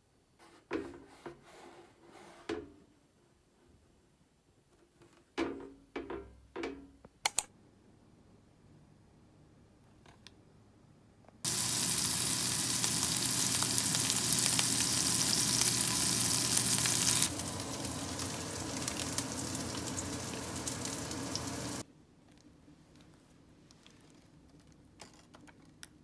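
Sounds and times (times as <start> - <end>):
fish frying in oil: 11.4 - 21.8.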